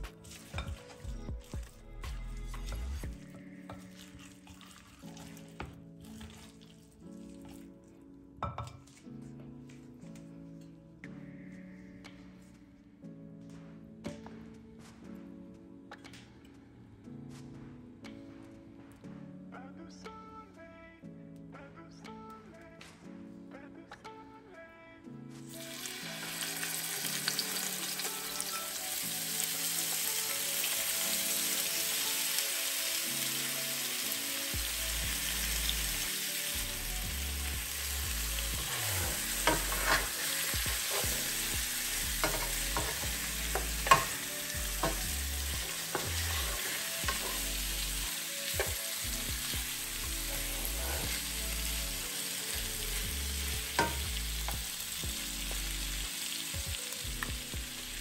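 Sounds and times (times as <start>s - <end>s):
chicken sizzling in oil: 25.5s - 58.0s
utensils knocking against pan: 39.4s - 41.3s, 42.2s - 47.5s, 53.8s - 54.1s.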